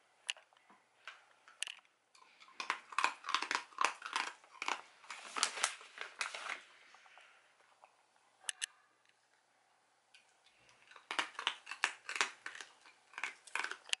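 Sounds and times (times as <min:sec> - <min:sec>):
dog crunching hard treats: 0:01.6 - 0:06.6, 0:10.7 - 0:14.0.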